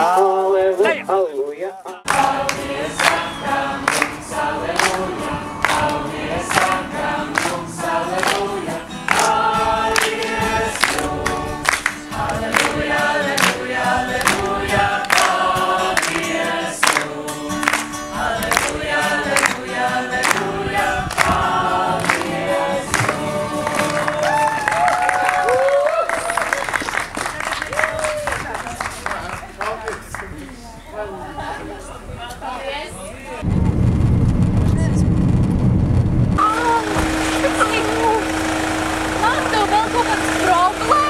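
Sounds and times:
group singing: 1.8 - 24.5
hand-clapping: 2.0 - 13.6, 14.2 - 19.6, 20.2 - 20.5, 21.1 - 21.4, 22.0 - 30.3.

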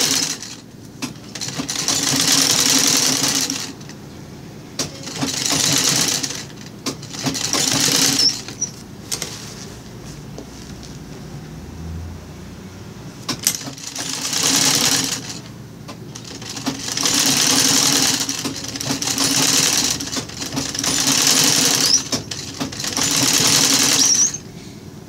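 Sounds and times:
sewing machine stitching: 0.0 - 4.0, 4.8 - 9.3, 13.2 - 24.4.

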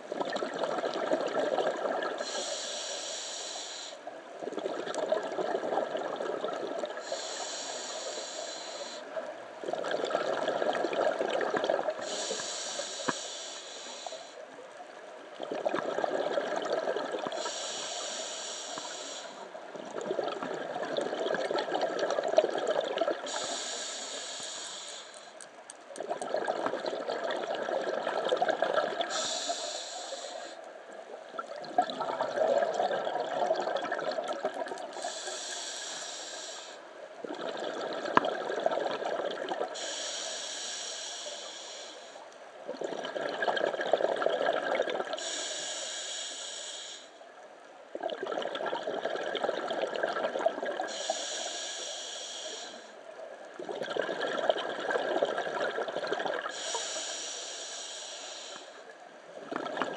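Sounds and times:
exhaled bubbles rushing: 0.2 - 2.2, 4.5 - 7.0, 9.6 - 12.0, 15.4 - 17.4, 19.8 - 23.2, 26.0 - 29.1, 31.4 - 34.9, 37.2 - 39.8, 42.7 - 45.2, 48.0 - 50.9, 53.6 - 56.5, 59.4 - 59.9
regulator inhale hiss: 2.2 - 4.1, 6.8 - 9.2, 11.9 - 14.5, 17.3 - 19.6, 23.2 - 25.5, 29.0 - 30.7, 34.9 - 37.0, 39.7 - 42.4, 45.1 - 47.4, 50.9 - 53.2, 56.4 - 59.0.

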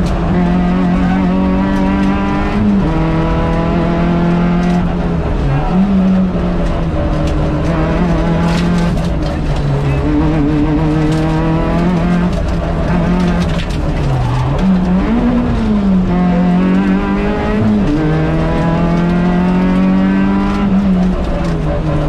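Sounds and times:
rally car engine running hard: 0.0 - 22.0
road and tyre noise: 0.0 - 22.0.

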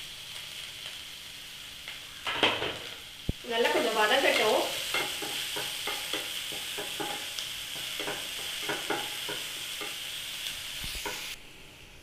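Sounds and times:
vegetables sizzling in oil: 0.0 - 12.0
spatula scraping frying pan: 3.6 - 11.4.

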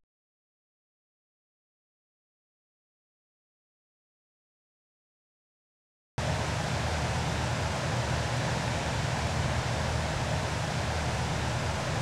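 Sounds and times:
turbulent white water rushing: 6.3 - 12.0.

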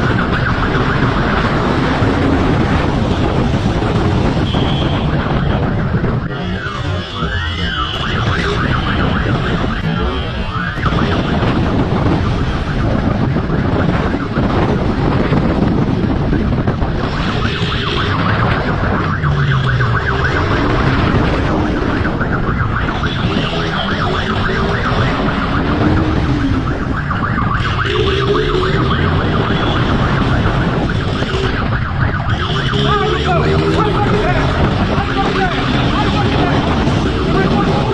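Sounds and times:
police siren: 0.0 - 37.9
wind rush on microphone: 0.0 - 37.9
motorcycle engine revving: 23.0 - 37.9.

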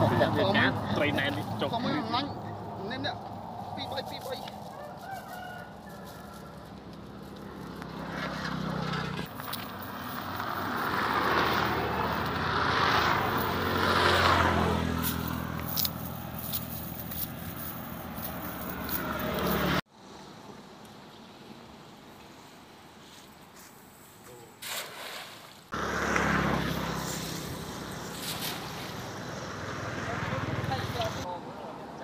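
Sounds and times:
vehicle engine passing: 0.0 - 4.6, 6.7 - 19.8, 25.7 - 31.3.

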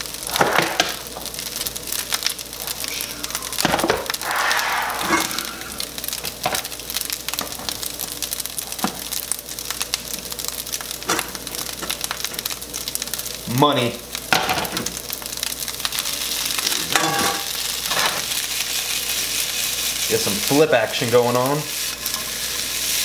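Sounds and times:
food sizzling in a frying pan: 0.0 - 23.0.

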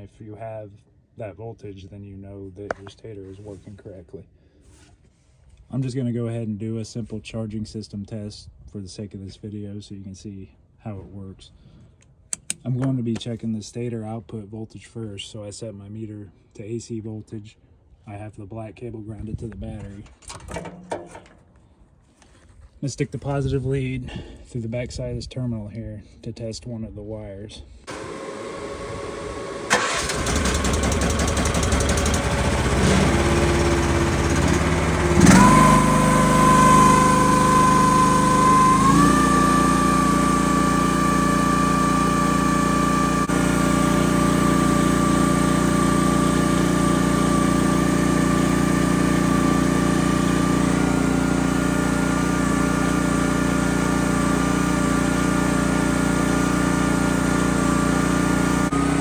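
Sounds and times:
small gasoline engine running: 27.9 - 59.0.

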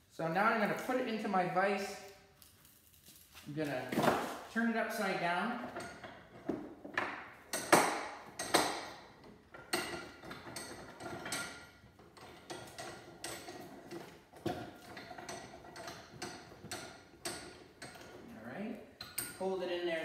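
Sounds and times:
metal clinks and taps: 5.6 - 18.2, 19.0 - 19.5.

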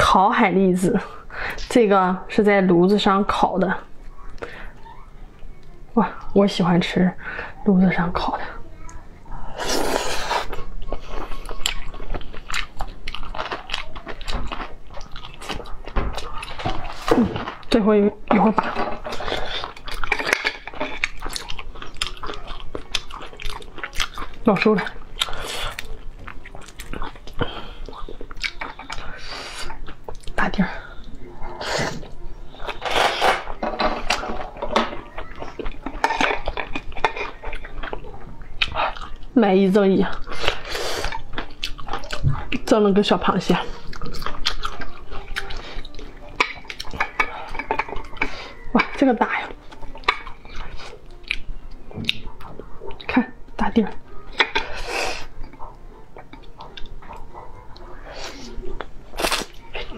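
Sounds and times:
wet chewing clicks and smacks: 10.5 - 17.7, 19.6 - 29.1, 35.2 - 39.3, 40.0 - 42.7, 43.8 - 53.2, 55.4 - 57.9.

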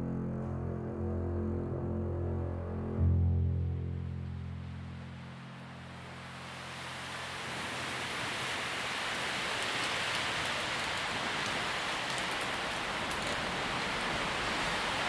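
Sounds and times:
low sustained drone: 0.0 - 6.8
steady rushing hiss: 4.7 - 15.0.

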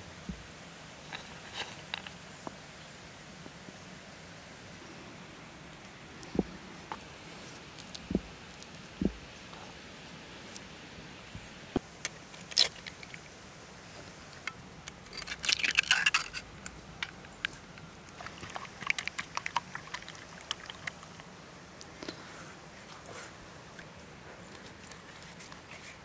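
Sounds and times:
eggshells cracking: 12.0 - 13.3, 14.3 - 21.3.

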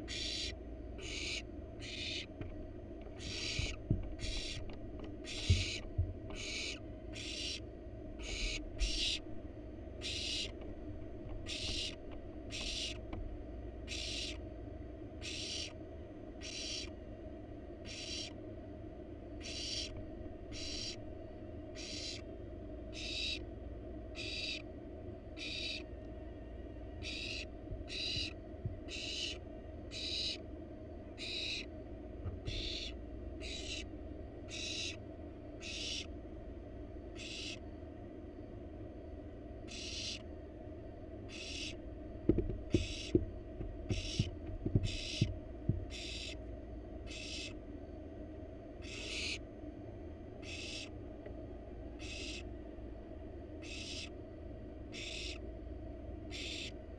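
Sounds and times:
owl nestlings hissing begging calls: 0.0 - 2.4, 3.1 - 9.4, 10.0 - 10.6, 11.4 - 13.1, 13.8 - 14.5, 15.2 - 15.8, 16.4 - 17.0, 17.8 - 18.4, 19.4 - 21.1, 21.7 - 23.5, 24.1 - 24.7, 25.3 - 25.9, 27.0 - 30.5, 31.1 - 31.7, 32.4 - 35.0, 35.6 - 36.2, 37.1 - 37.7, 39.6 - 40.3, 41.2 - 41.8, 42.7 - 43.2, 43.8 - 46.4, 47.0 - 47.6, 48.8 - 49.5, 50.4 - 51.0, 52.0 - 52.5, 53.5 - 54.2, 54.9 - 55.5, 56.2 - 56.8
sharp low knocks: 3.4 - 6.2, 42.2 - 46.0.

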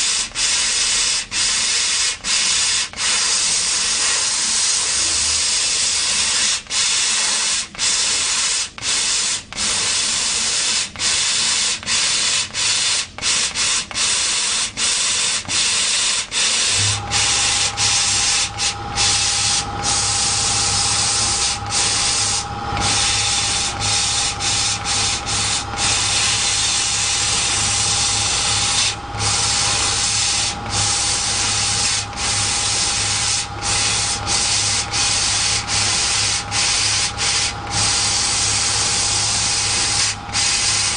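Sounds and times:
laser cutter air hiss: 0.0 - 40.9
steady whine: 16.6 - 40.9.

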